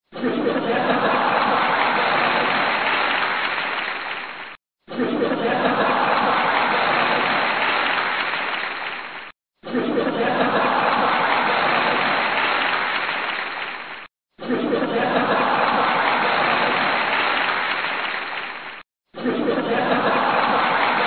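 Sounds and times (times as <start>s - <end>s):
audience laughing: 0.1s - 3.8s, 4.9s - 8.5s, 9.6s - 13.3s, 14.4s - 18.2s, 19.2s - 21.0s
audience clapping: 0.8s - 4.6s, 5.6s - 9.4s, 10.3s - 14.1s, 15.0s - 18.9s, 19.7s - 21.0s.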